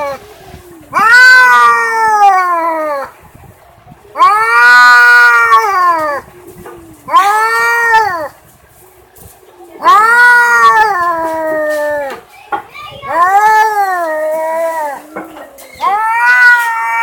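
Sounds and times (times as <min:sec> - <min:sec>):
cat yowling: 0:00.9 - 0:03.2, 0:04.2 - 0:06.3, 0:07.0 - 0:08.4, 0:09.8 - 0:12.2, 0:13.1 - 0:17.0.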